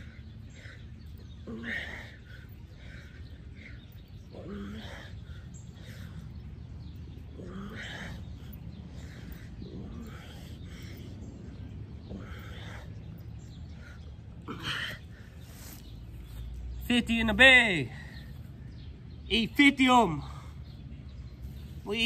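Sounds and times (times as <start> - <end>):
man grunting and breathing hard: 0.0 - 15.3
steady low rumble: 0.0 - 17.0.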